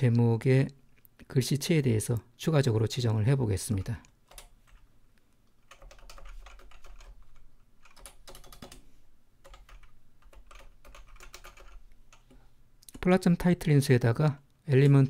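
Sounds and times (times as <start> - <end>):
typing on computer keyboard: 4.3 - 4.8, 5.6 - 8.8, 9.4 - 13.1.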